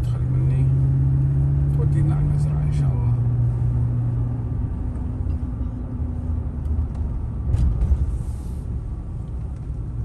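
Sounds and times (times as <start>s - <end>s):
car cabin road rumble: 0.0s - 10.0s.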